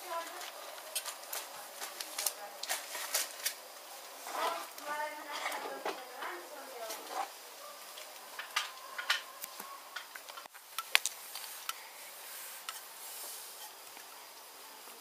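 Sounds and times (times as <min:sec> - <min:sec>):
sharp clicks and taps: 0:10.1 - 0:11.8.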